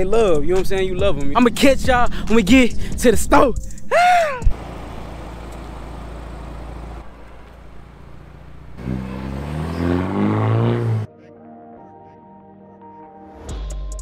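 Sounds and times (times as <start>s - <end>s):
car engine revving: 4.5s - 11.1s.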